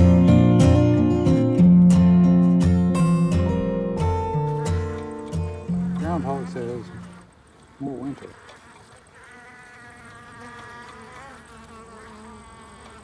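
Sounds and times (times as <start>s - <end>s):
honeybees buzzing: 3.0s - 13.0s.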